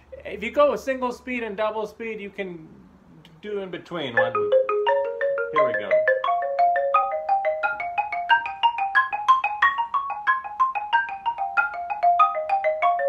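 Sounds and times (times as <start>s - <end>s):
xylophone notes: 4.2s - 13.0s.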